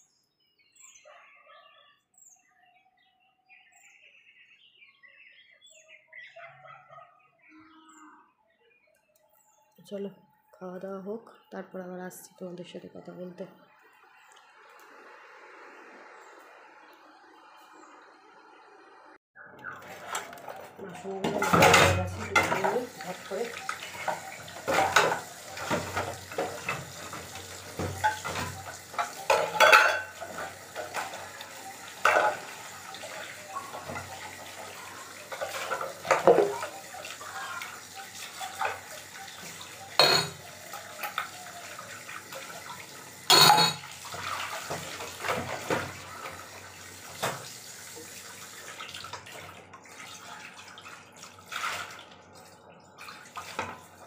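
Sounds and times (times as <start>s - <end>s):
metal utensils clinking: 19.8s - 31.4s, 32.0s - 32.6s, 35.2s - 36.7s, 40.0s - 40.4s, 43.3s - 43.8s
tap water splashing into sink: 21.3s - 52.0s.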